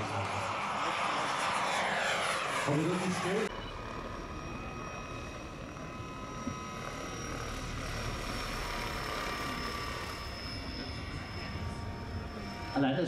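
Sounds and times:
model helicopter whine: 0.0s - 13.0s.

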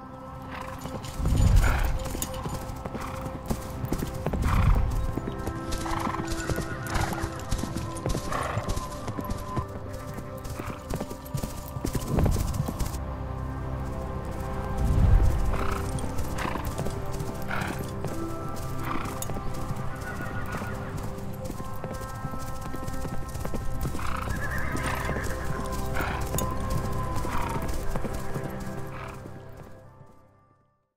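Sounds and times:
horse hoofbeats galloping: 0.0s - 30.2s
background music with chords: 0.0s - 30.7s
horse whinnying: 24.0s - 26.5s.

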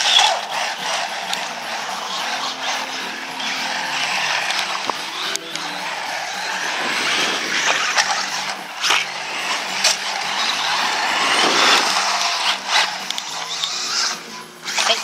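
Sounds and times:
electric motor whining: 0.0s - 15.0s.

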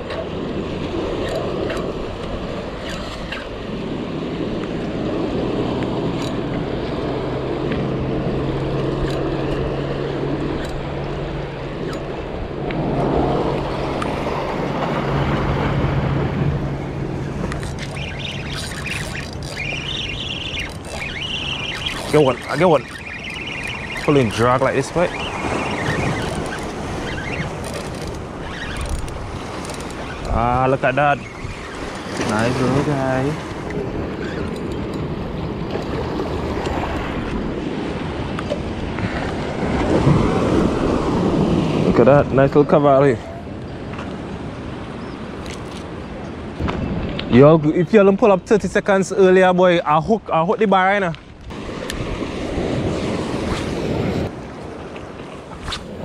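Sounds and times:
motorboat engine droning: 0.0s - 47.2s
sea surf washing: 0.0s - 56.0s
water noise: 0.0s - 56.0s
wind: 0.0s - 56.0s
birds calling: 16.6s - 35.5s, 44.8s - 47.4s
wind on microphone: 51.1s - 56.0s.

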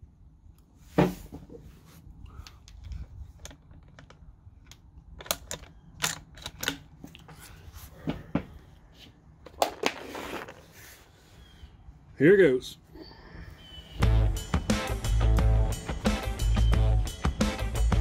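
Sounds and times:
rifle bolt clicks and clacks: 2.4s - 7.2s.

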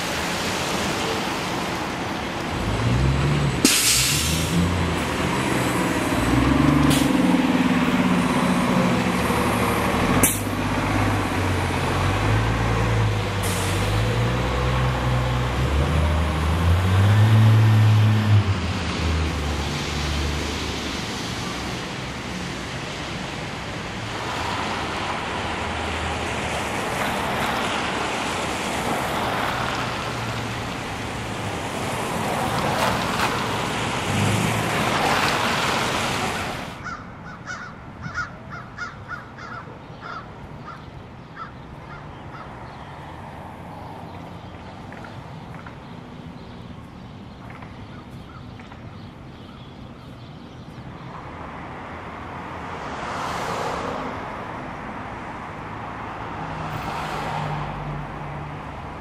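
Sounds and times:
tyres hissing through slush: 3.6s - 4.6s.

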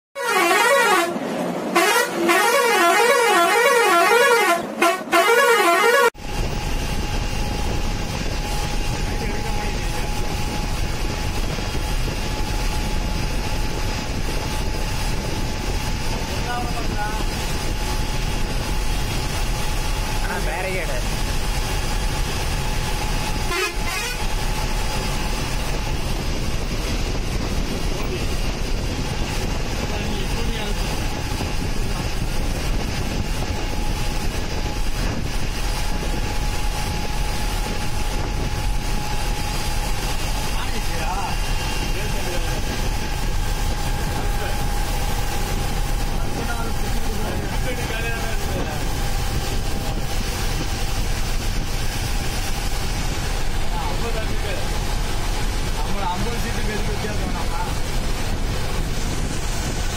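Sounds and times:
musical air horn warbling: 0.2s - 6.2s, 23.3s - 25.1s
bus engine drone: 0.2s - 59.9s
road noise: 0.2s - 59.9s.

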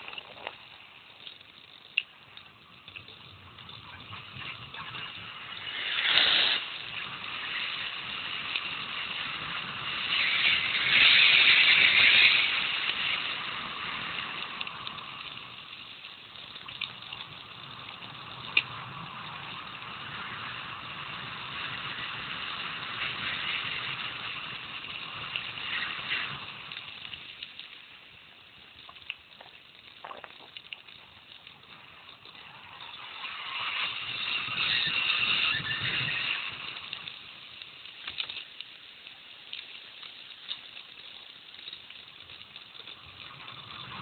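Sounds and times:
bike tyres crunching on gravel: 2.5s - 44.0s
wind on microphone: 33.8s - 37.0s.

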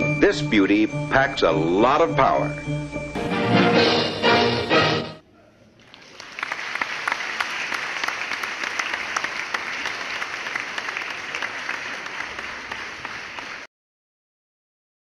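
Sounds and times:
audience applause: 5.7s - 13.7s.

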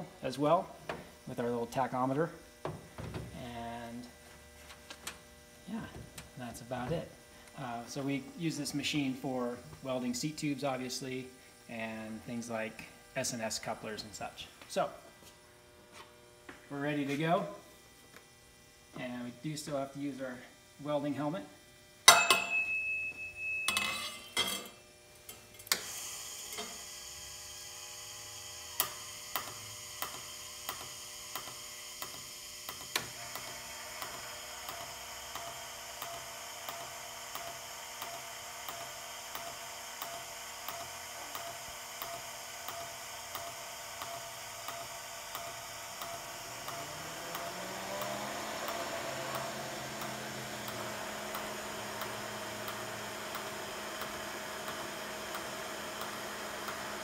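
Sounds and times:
welding arc hissing and buzzing: 0.0s - 22.1s, 23.9s - 57.0s
low hum rising in pitch: 46.2s - 52.1s.

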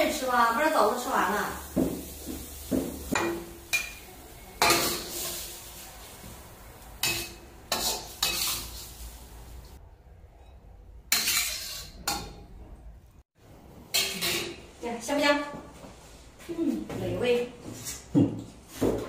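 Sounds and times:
metal spatula scraping a wok: 2.0s - 6.3s, 6.9s - 9.8s, 10.4s - 12.5s, 13.9s - 14.7s.

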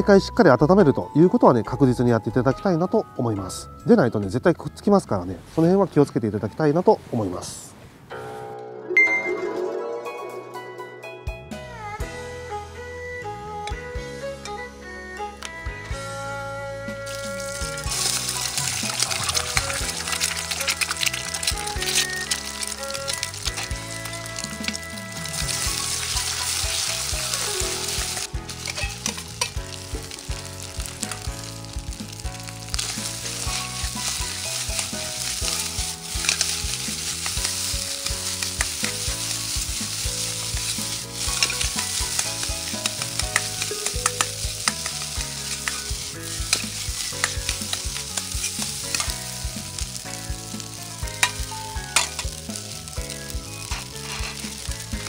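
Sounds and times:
rice sizzling in a wok: 16.8s - 55.0s
metal ladle scraping a wok: 17.1s - 31.3s, 32.7s - 49.5s, 53.6s - 55.0s.

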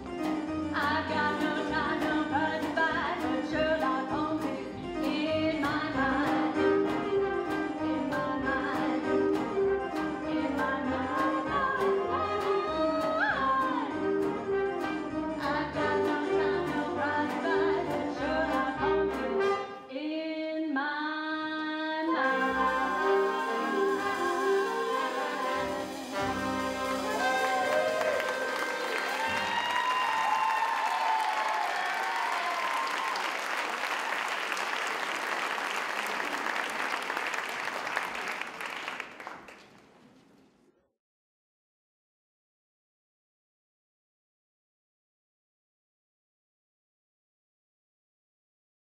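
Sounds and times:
pit band playing show tune: 0.0s - 19.8s, 22.1s - 31.0s
audience applauding: 23.2s - 39.9s.

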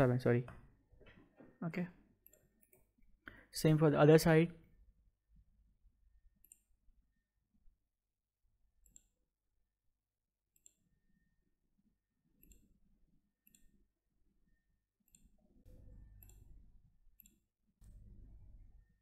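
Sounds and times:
computer mouse clicks: 2.2s - 2.9s, 6.4s - 6.8s, 8.8s - 9.2s, 10.5s - 10.9s, 12.4s - 12.8s, 13.4s - 13.8s, 15.0s - 16.6s, 17.2s - 18.1s.

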